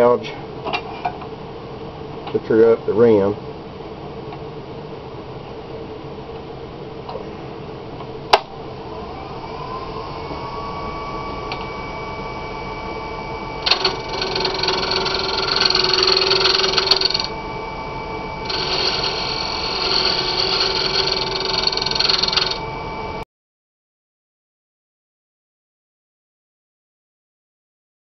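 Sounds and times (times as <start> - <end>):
lathe motor whine: 8.6 - 23.2
gouge scraping wood: 13.6 - 17.2.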